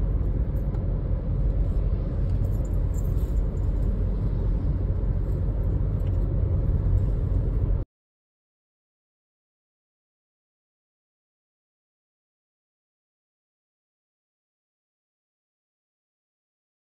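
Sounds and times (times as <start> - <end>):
car cabin engine and tyre rumble: 0.0 - 7.9.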